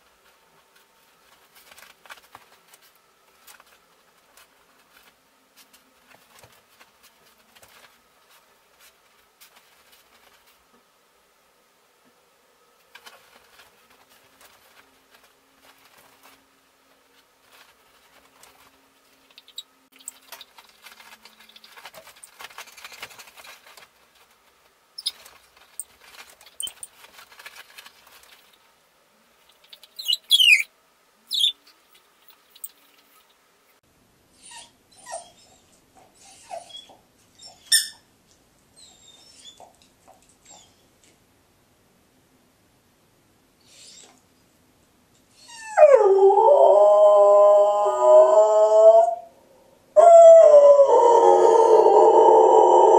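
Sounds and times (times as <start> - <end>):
dog whimpering: 34.4 - 37.7
dog whining: 34.4 - 38.0, 38.8 - 39.7, 45.3 - 49.3.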